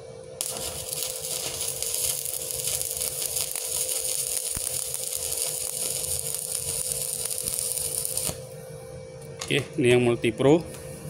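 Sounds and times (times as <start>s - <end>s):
steady hum: 0.0s - 11.0s
welding arc crackling: 0.4s - 8.4s.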